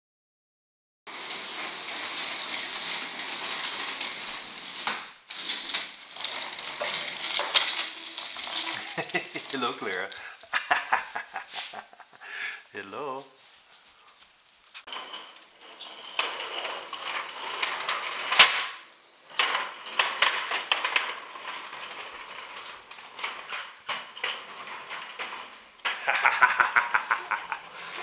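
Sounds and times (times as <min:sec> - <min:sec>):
toy stroller wheels rattling: 0:06.1 - 0:10.2.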